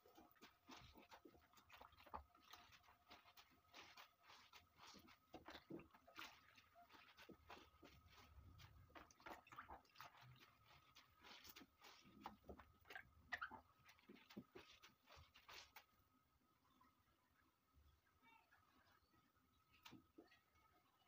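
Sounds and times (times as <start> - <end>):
wet leaves squelching by hand: 0.0 - 15.9.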